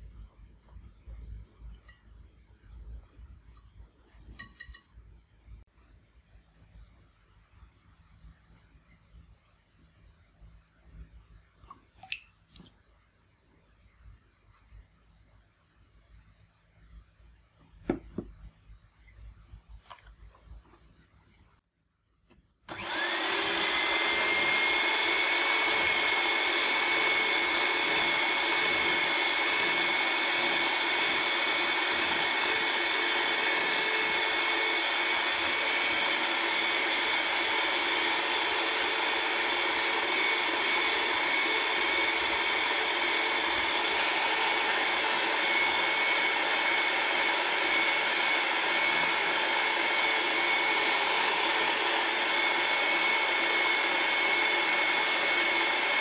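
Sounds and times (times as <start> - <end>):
electric hand mixer whining: 22.7 - 56.0.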